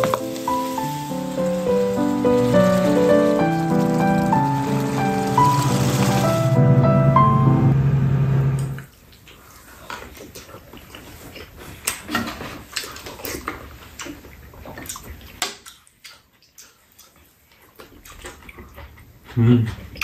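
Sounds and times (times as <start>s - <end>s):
wet chewing and lip smacking: 8.9s - 20.0s.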